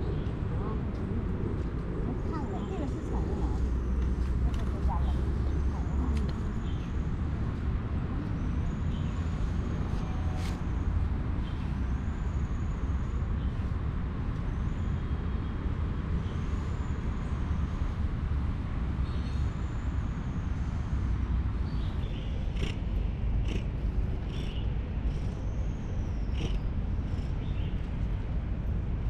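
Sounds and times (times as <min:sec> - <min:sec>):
distant road traffic rumble: 0:00.0 - 0:29.0.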